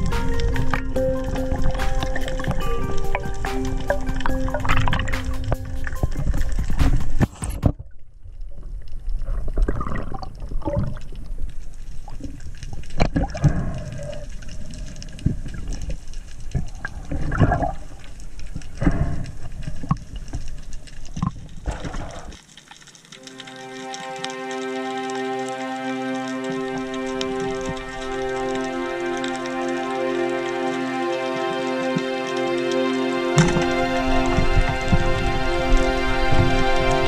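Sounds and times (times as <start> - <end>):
music: 0.0 - 7.6, 23.2 - 37.0
water sloshing underwater: 0.0 - 24.3, 33.4 - 37.0.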